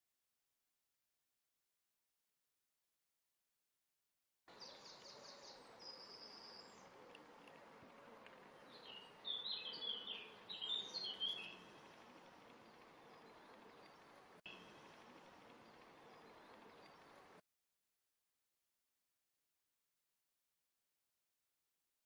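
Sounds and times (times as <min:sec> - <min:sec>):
faint outdoor background noise: 0:04.5 - 0:17.4
small songbirds chirping: 0:04.5 - 0:17.4.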